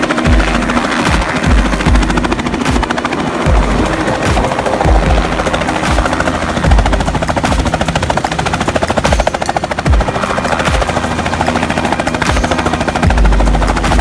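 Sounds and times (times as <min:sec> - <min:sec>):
helicopter rotor chop: 0:00.0 - 0:14.0
steady hum: 0:00.0 - 0:14.0
heavy low rumbles: 0:00.1 - 0:08.9, 0:09.8 - 0:14.0.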